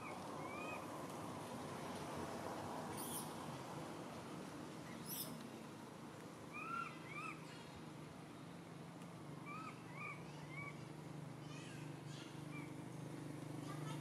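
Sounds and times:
baby monkey squeaking: 3.0s - 3.2s, 5.0s - 5.3s.

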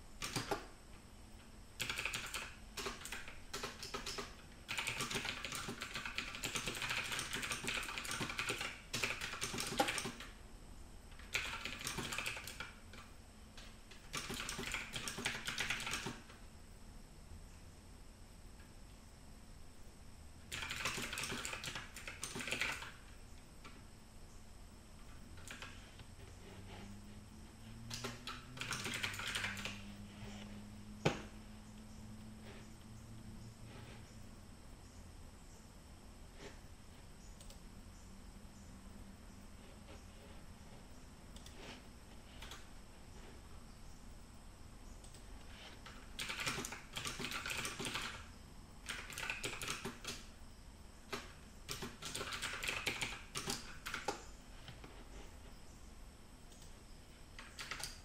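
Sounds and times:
low steady hum: 0.0s - 47.0s, 48.1s - 49.0s, 50.2s - 52.0s, 53.2s - 58.0s
typing on a keyboard: 0.2s - 0.7s, 1.8s - 10.4s, 11.2s - 16.3s, 20.5s - 23.0s, 25.4s - 25.8s, 27.9s - 29.9s, 42.4s - 42.7s, 45.8s - 50.3s, 51.1s - 54.2s, 57.4s - 58.0s.

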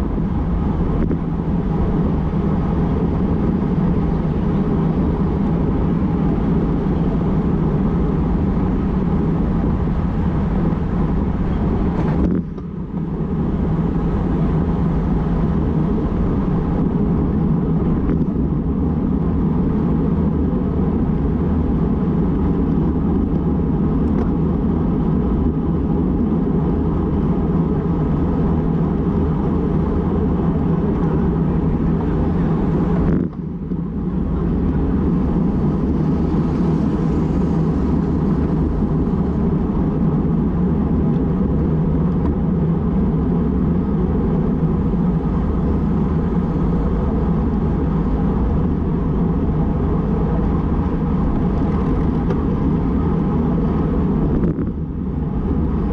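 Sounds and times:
wind rushing over microphone: 0.0s - 55.9s.

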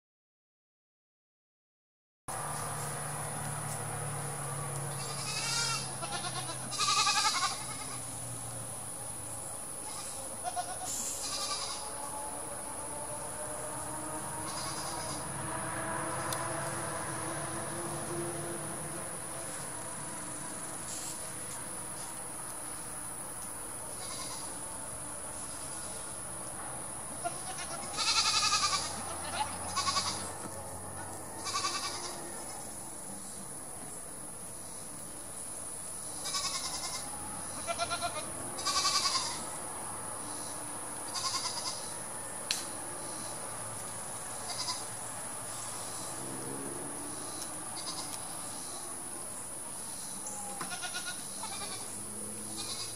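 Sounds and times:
goats bleating: 4.9s - 8.0s, 9.9s - 12.0s, 14.4s - 15.3s, 24.0s - 24.5s, 27.2s - 30.4s, 31.4s - 32.6s, 36.2s - 39.5s, 41.1s - 41.8s, 44.4s - 44.9s, 47.8s - 48.2s, 50.6s - 51.9s, 52.6s - 52.9s.

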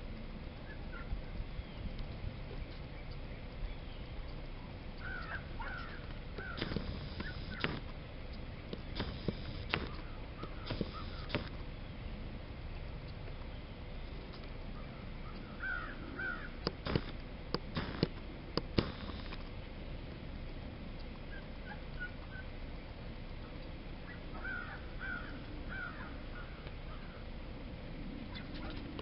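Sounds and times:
steady low rumble: 0.0s - 29.0s
birds calling: 0.5s - 27.6s, 28.2s - 29.0s
sharp clicks: 4.3s - 11.6s, 16.6s - 19.6s.

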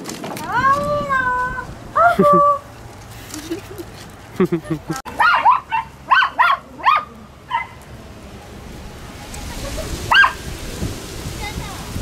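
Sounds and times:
dog yipping: 5.2s - 7.8s, 10.1s - 10.4s.

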